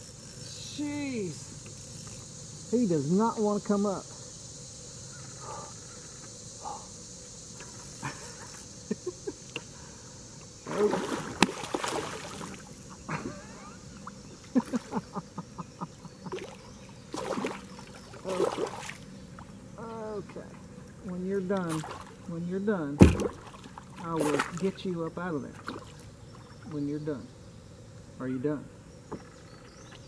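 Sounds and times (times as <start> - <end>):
insects droning: 0.0 - 30.0
fish splashing at water surface: 10.6 - 13.5, 16.3 - 19.0, 23.0 - 24.7.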